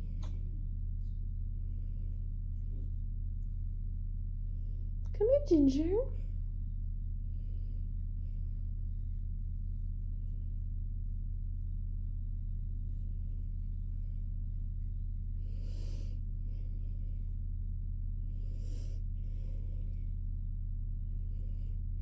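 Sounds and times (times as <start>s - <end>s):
soft rustle: 0.0s - 5.1s.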